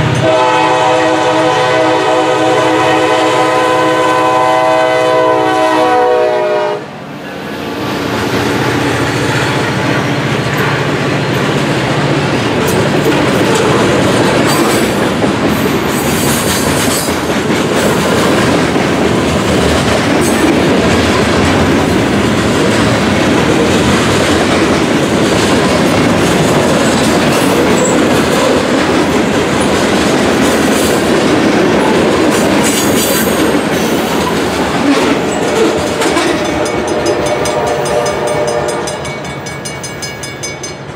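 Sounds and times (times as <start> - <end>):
train wheel and rail clatter: 0.0 - 6.6, 7.2 - 40.9
locomotive horn chord: 0.0 - 7.0, 35.4 - 39.1
diesel locomotive hum: 0.0 - 40.9.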